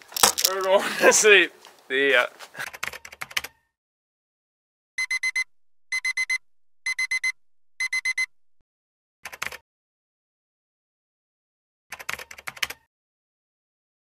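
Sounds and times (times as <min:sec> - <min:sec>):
digital alarm clock beeping: 0:05.0 - 0:08.6.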